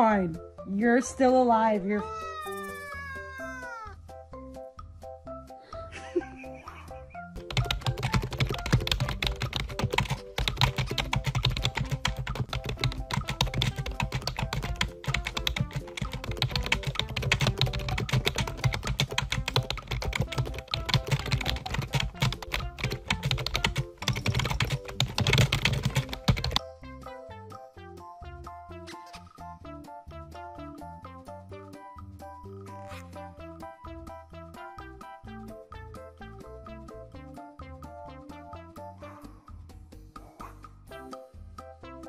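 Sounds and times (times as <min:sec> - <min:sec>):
faint music: 0:00.0 - 0:03.9, 0:05.3 - 0:27.4
fast clicking and tapping: 0:07.4 - 0:26.6.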